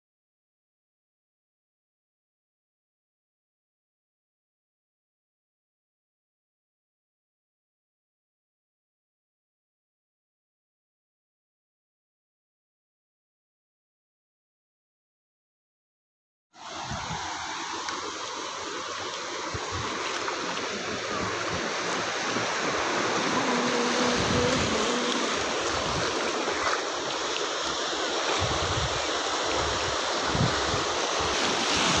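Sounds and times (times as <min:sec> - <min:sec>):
sea surf breaking on beach: 0:16.6 - 0:32.0.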